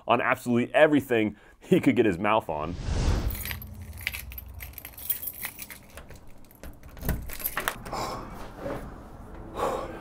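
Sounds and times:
keys jangling in a lock: 0:03.4 - 0:07.9.

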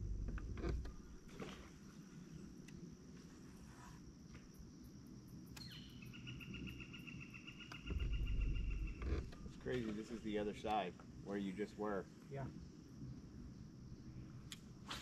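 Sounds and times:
faint steady high whine: 0:00.0 - 0:15.0
insect buzzing trill: 0:03.6 - 0:09.7.

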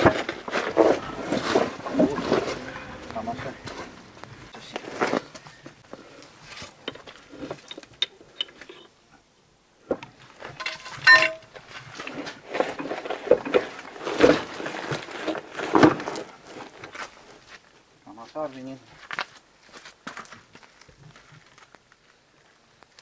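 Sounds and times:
steel clanking and scraping: 0:00.0 - 0:05.3, 0:06.5 - 0:08.9, 0:10.4 - 0:16.2
ringing metal strike: 0:11.0 - 0:11.5.

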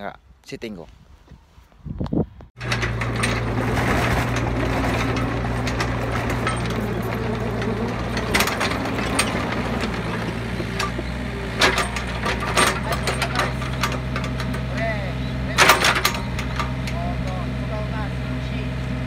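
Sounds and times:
sharp metallic clanks: 0:02.6 - 0:17.4
excavator diesel engine running: 0:02.6 - 0:19.0.

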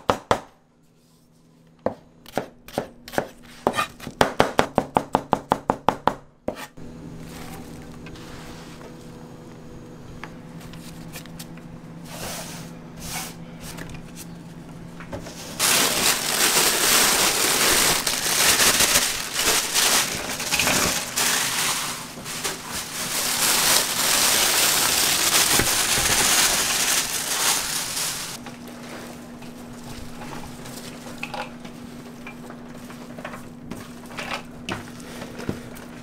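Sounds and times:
low steady hum: 0:06.8 - 0:35.9
electric meat grinder grinding: 0:15.6 - 0:21.3.

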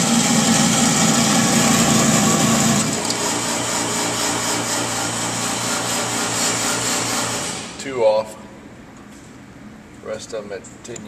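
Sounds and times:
target carrier motor running: 0:00.0 - 0:07.7
low steady motor hum: 0:00.0 - 0:09.0.

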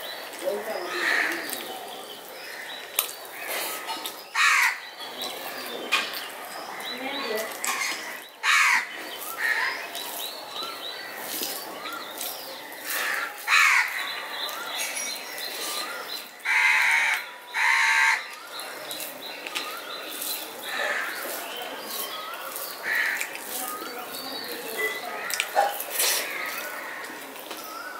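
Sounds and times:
small birds chirping: 0:00.0 - 0:27.9
crows cawing: 0:00.8 - 0:01.6, 0:03.7 - 0:04.8, 0:07.5 - 0:09.8, 0:12.7 - 0:14.2, 0:16.4 - 0:18.3, 0:20.7 - 0:21.3, 0:22.5 - 0:23.4, 0:26.2 - 0:27.3.

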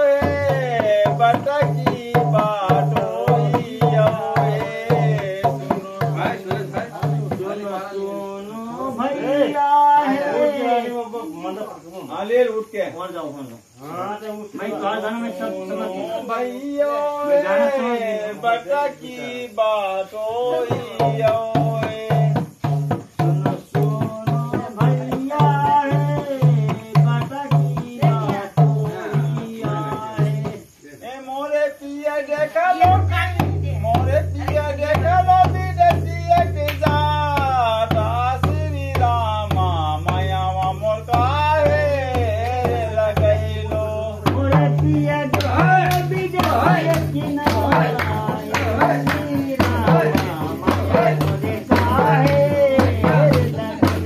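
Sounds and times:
barrel hand drum beat: 0:00.0 - 0:07.9, 0:20.4 - 0:30.8, 0:32.4 - 0:54.0
person singing folk song: 0:00.0 - 0:11.4, 0:13.8 - 0:54.0.

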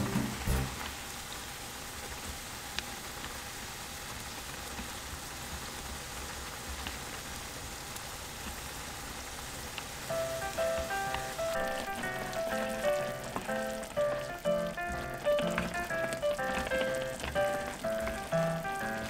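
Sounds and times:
light music: 0:00.0 - 0:00.8, 0:10.1 - 0:19.0
broth boiling in a pan: 0:00.0 - 0:19.0.

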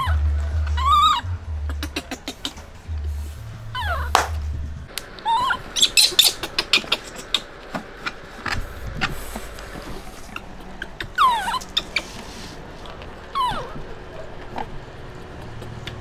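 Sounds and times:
monkey squealing: 0:00.0 - 0:02.7, 0:03.7 - 0:04.2, 0:05.2 - 0:08.2, 0:10.2 - 0:12.4, 0:13.3 - 0:13.8.

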